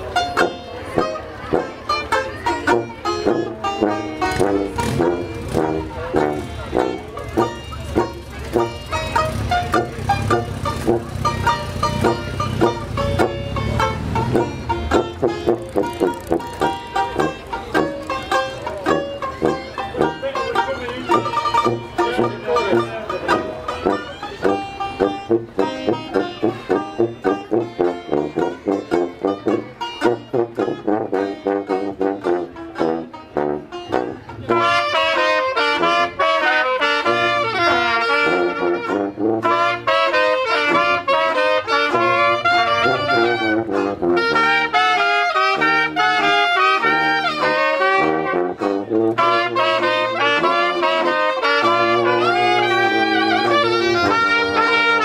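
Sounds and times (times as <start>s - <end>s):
sousaphone bass: 0.0s - 36.4s, 37.0s - 55.0s
banjo strumming: 0.0s - 55.0s
jazz band playing: 0.0s - 55.0s
trumpet: 0.0s - 55.0s
saxophone: 2.3s - 55.0s.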